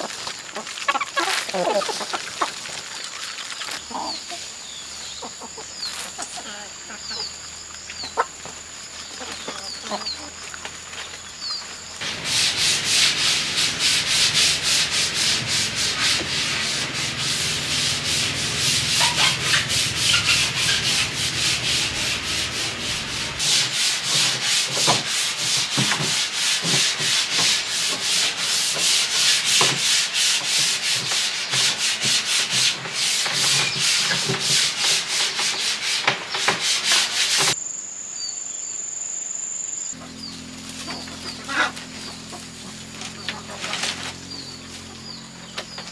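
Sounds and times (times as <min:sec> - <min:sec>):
insects buzzing: 0:00.0 - 0:30.1, 0:35.5 - 0:45.9
sanding wooden planks: 0:11.6 - 0:37.6, 0:40.4 - 0:45.9.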